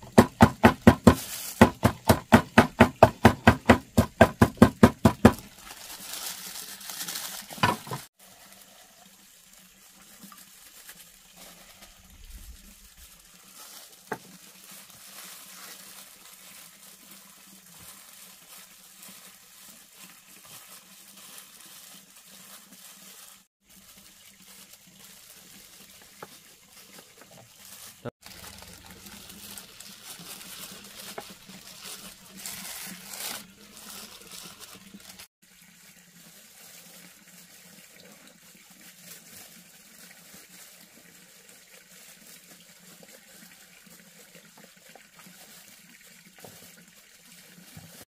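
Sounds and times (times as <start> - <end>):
knife chopping on a board: 0.1 - 5.4.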